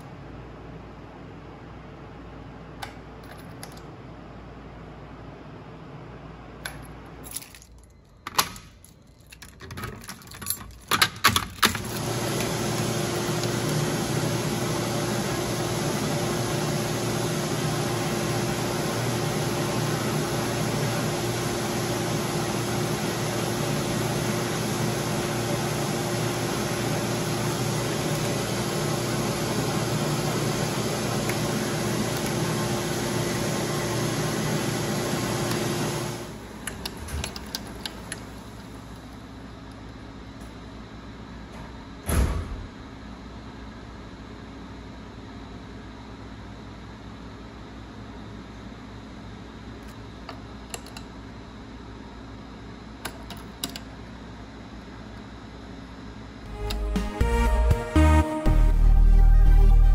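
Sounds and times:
keys jangling and clicking: 7.2 - 11.8.

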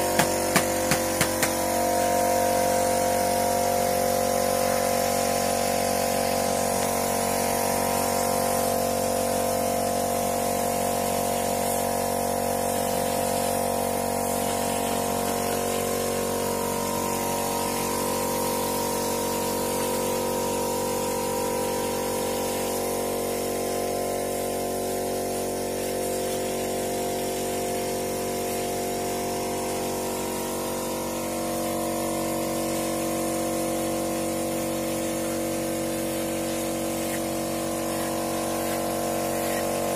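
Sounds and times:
machine motor humming: 0.0 - 5.0.

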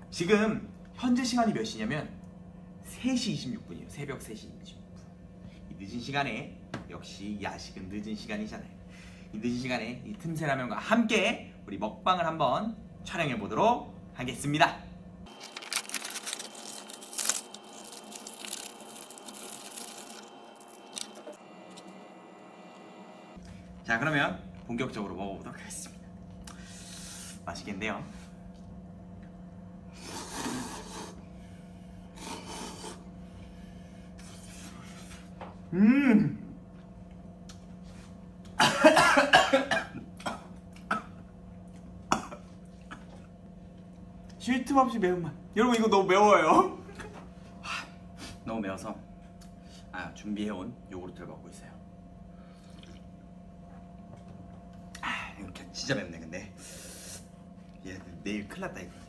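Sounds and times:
foil lid peeling: 15.3 - 21.4
packaging rustling: 15.3 - 21.4
packet tearing and crinkling: 15.3 - 21.4
man coughing and choking: 38.6 - 41.2, 42.1 - 43.2.

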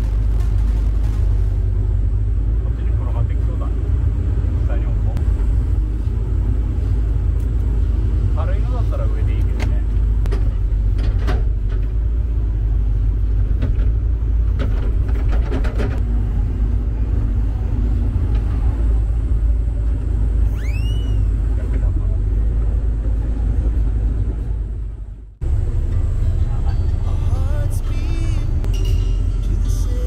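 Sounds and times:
low engine rumble: 0.0 - 30.0
short rising squeal: 20.4 - 21.5.

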